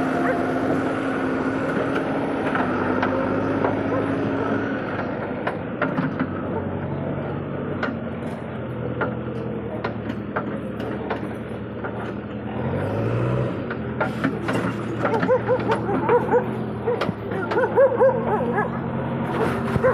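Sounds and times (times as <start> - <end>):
diesel engine running: 0.0 - 19.9
machine clanks and knocks: 4.9 - 6.9, 7.8 - 12.2, 13.7 - 17.8.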